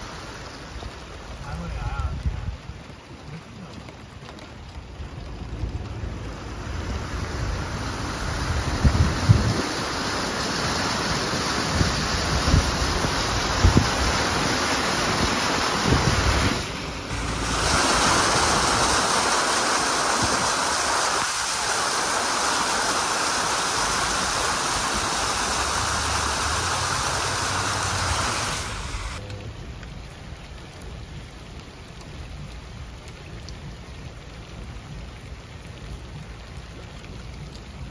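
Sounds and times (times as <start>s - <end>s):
steady rainfall: 0.0s - 37.9s
vehicle splashing through floodwater: 0.0s - 37.9s
wind buffeting microphone: 4.8s - 9.9s, 10.9s - 21.5s.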